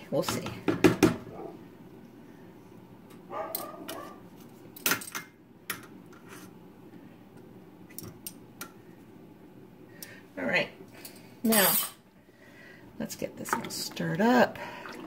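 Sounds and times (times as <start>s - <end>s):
low steady hum: 0.0s - 15.0s
kitchen utensils clinking: 11.5s - 12.0s.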